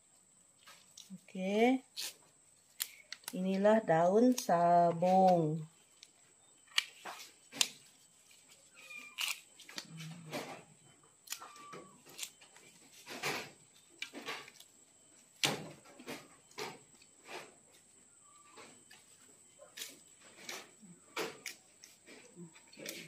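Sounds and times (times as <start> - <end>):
faint high squeaky tones: 8.4 - 13.0, 17.8 - 21.4
leaves snapping off stems: 9.0 - 10.0, 11.2 - 12.4.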